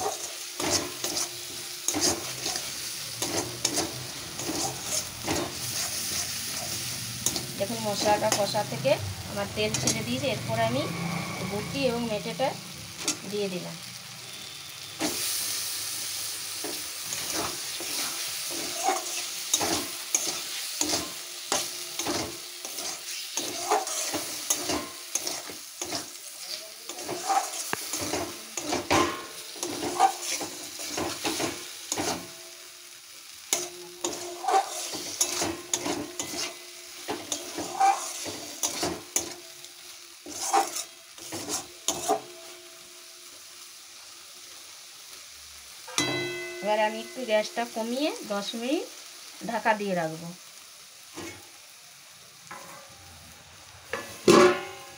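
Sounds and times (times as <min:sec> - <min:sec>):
spatula scraping and knocking pan: 0:00.0 - 0:08.5, 0:16.6 - 0:32.4, 0:33.5 - 0:39.4, 0:40.2 - 0:42.4, 0:53.9 - 0:54.9
meat sizzling in a pan: 0:00.0 - 0:54.9.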